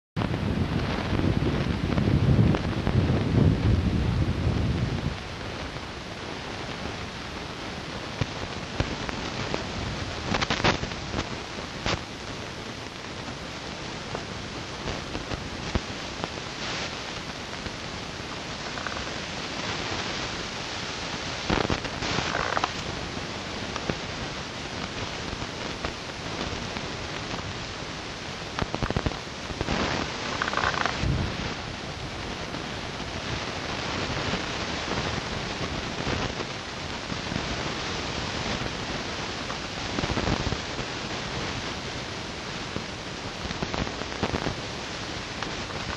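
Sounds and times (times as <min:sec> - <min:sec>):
wind buffeting microphone: 0:00.2 - 0:12.0, 0:28.5 - 0:37.8
wind on microphone: 0:00.2 - 0:45.9.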